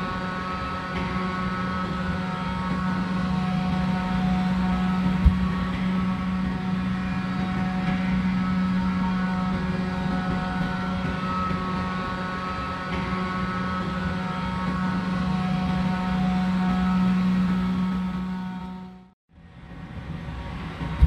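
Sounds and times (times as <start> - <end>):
high whining tones: 0.0 - 19.1
machinery hum: 0.0 - 21.0.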